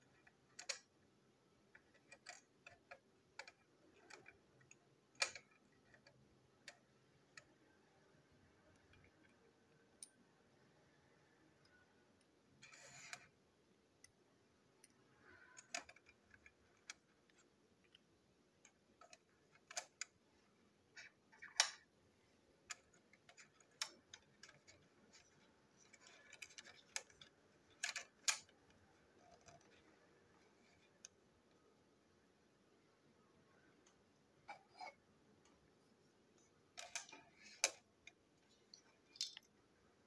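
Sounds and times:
small plastic clicks and taps: 0.0s - 0.9s, 22.6s - 31.2s.

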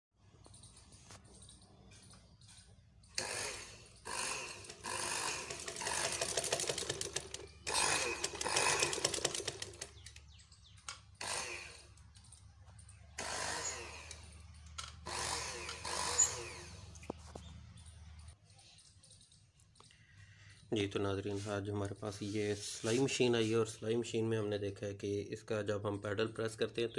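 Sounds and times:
sewing machine motor spurts: 3.2s - 10.2s, 11.2s - 12.4s, 13.1s - 14.4s, 15.0s - 17.0s.

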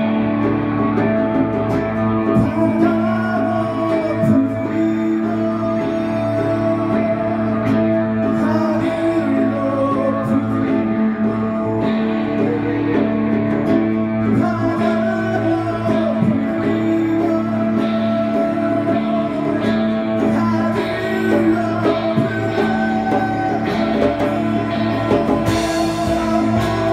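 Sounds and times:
live rock band playing: 0.0s - 26.9s
person singing: 0.0s - 26.9s.

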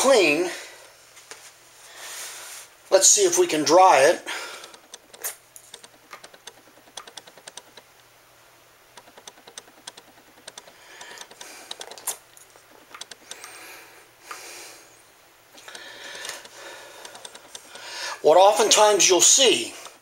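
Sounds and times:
plastic clicks and taps: 4.6s - 7.8s, 9.0s - 12.2s.

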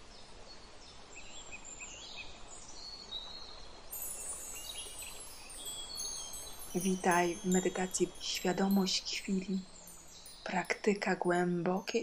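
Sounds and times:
outdoor background hiss: 0.0s - 12.0s
birds chirping: 3.9s - 11.9s
wind chimes ringing: 3.9s - 12.0s.

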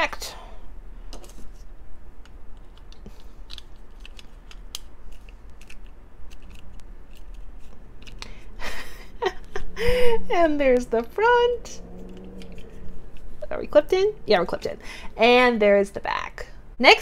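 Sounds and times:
plastic toy parts clicking: 2.2s - 8.3s.

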